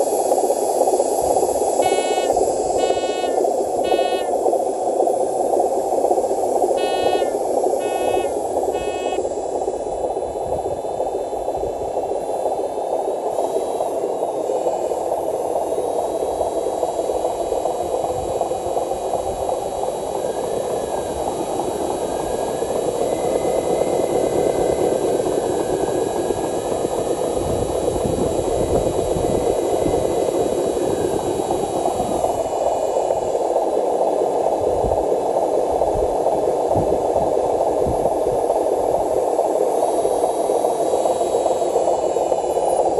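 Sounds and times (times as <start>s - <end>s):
faint motor whine: 0.0s - 42.9s
toy truck motors grinding: 1.8s - 4.3s, 6.8s - 9.2s.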